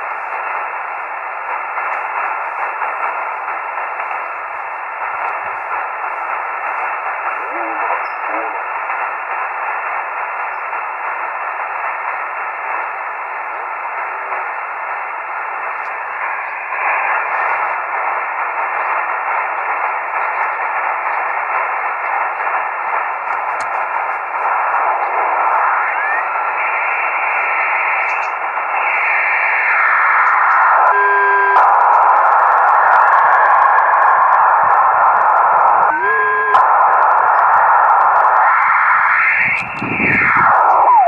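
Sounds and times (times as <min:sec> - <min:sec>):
radio receiver hiss: 0:00.0 - 0:41.0
steady radio tones: 0:00.0 - 0:41.0
faint radio signals gliding in pitch: 0:00.1 - 0:41.0.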